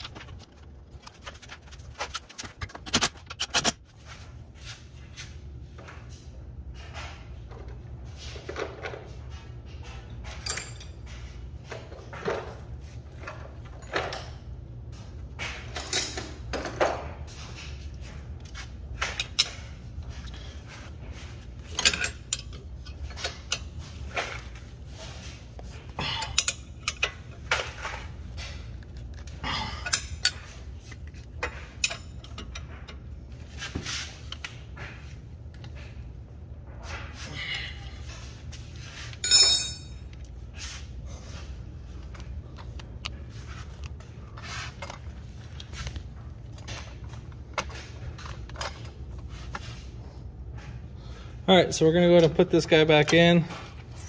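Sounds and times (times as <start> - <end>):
metal tools clinking: 10.2 - 11.3, 21.6 - 24.6, 26.0 - 33.1, 39.0 - 40.3.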